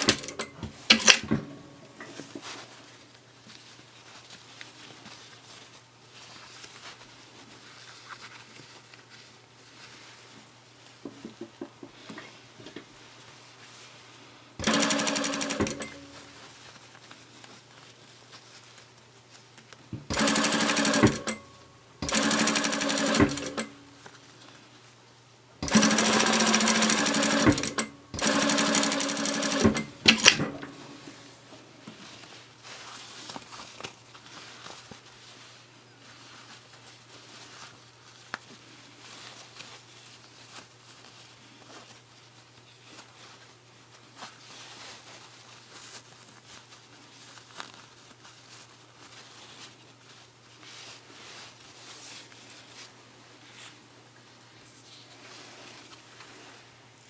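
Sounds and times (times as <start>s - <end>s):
sewing machine stitching: 0.0s - 1.6s, 14.6s - 16.2s, 20.1s - 23.8s, 25.6s - 30.8s.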